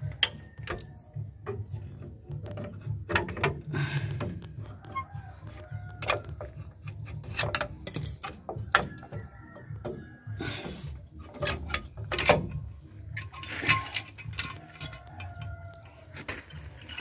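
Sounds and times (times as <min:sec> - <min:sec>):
metal clinks and scrapes of brake parts: 0:05.6 - 0:09.3, 0:10.6 - 0:17.0.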